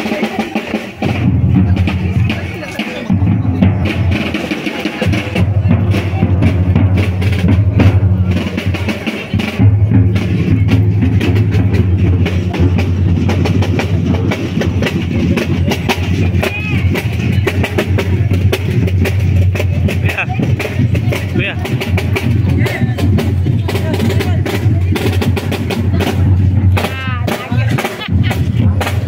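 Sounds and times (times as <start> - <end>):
marching drums: 0.0 - 29.0.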